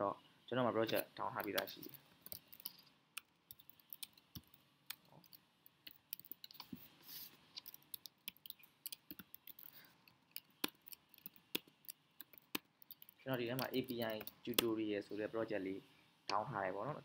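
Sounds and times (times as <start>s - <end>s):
keyboard typing clicks: 7.6s - 9.7s, 10.3s - 14.7s.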